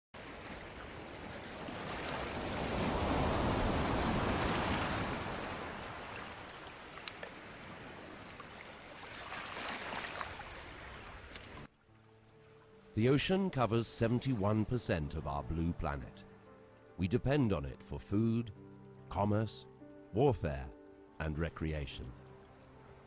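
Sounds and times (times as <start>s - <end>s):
waves breaking: 0.2s - 11.7s.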